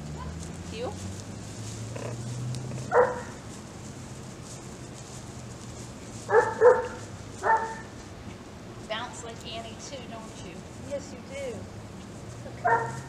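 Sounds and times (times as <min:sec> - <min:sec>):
puppy barking: 0:02.8 - 0:03.4, 0:06.3 - 0:08.0, 0:12.6 - 0:13.0.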